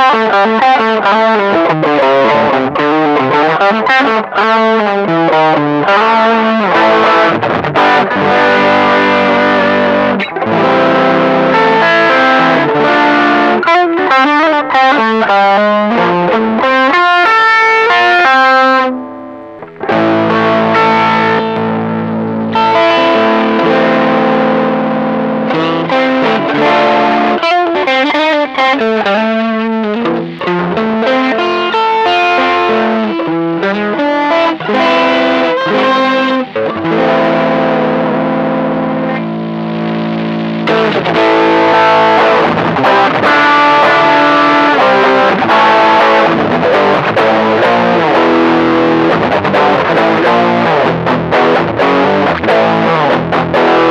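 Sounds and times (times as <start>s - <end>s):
distorted electric guitar: 0.0s - 53.9s.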